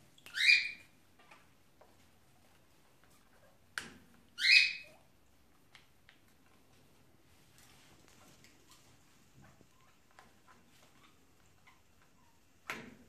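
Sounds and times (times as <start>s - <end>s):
cockatiel call: 0.3s - 0.9s, 4.4s - 5.0s.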